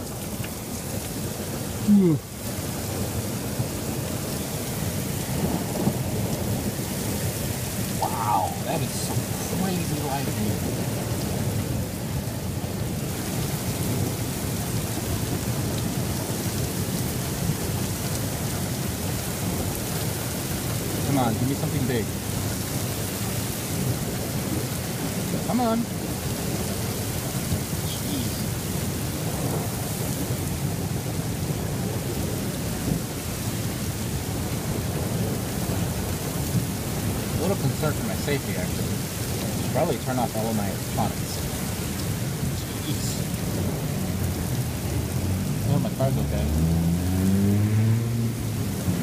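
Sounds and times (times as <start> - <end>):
low rumble of thunder: 0.0 - 49.0
steady rain: 0.0 - 49.0.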